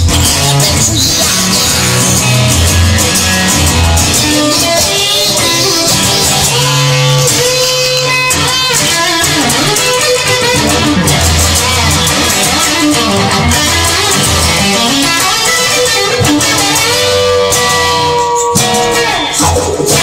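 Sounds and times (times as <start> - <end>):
electric guitar music: 0.0 - 20.0
low bass notes: 0.0 - 20.0.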